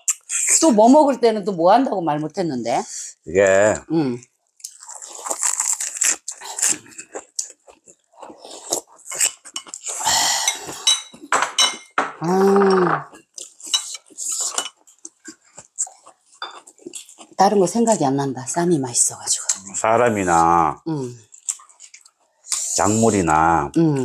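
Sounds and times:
crunchy chewing: 4.5s - 10.1s, 13.1s - 18.0s, 21.2s - 22.9s
person humming: 12.2s - 13.1s.

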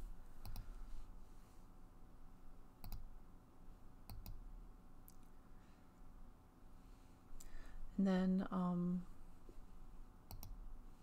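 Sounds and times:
faint computer mouse clicks: 0.4s - 0.7s, 2.8s - 3.1s, 4.1s - 4.4s, 10.3s - 10.6s.

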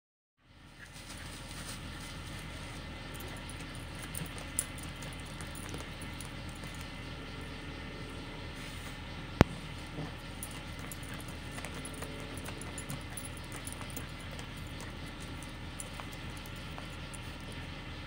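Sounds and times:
dog digging in soil and leaves: 0.8s - 7.0s, 9.7s - 17.8s.

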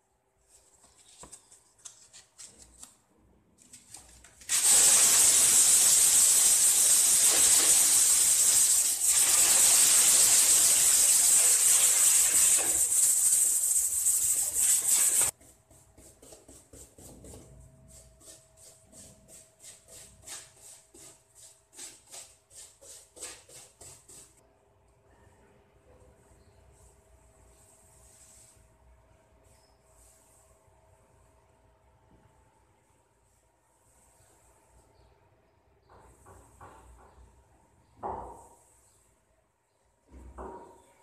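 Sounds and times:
loud steady hiss: 4.5s - 15.3s
sandpaper rubbing on wood: 4.5s - 15.4s, 17.9s - 24.4s.

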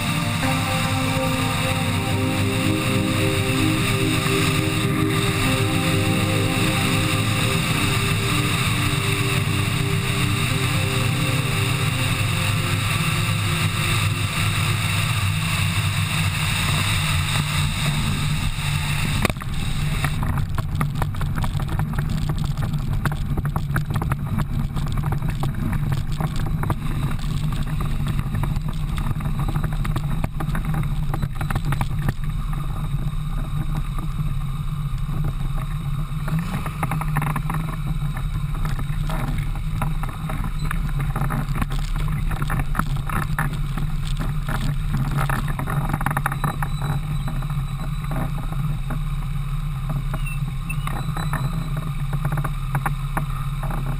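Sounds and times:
small aircraft engine and propeller drone: 0.0s - 53.9s.

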